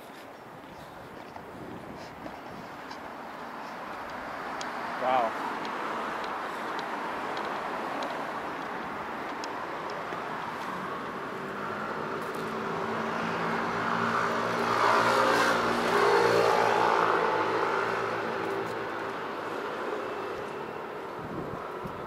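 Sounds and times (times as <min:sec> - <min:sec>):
vehicle passing by: 0:10.2 - 0:21.9.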